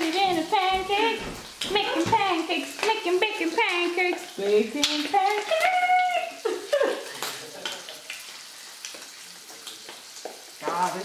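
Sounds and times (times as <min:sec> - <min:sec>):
woman singing: 0:00.0 - 0:06.4
food sizzling in a frying pan: 0:00.0 - 0:11.0.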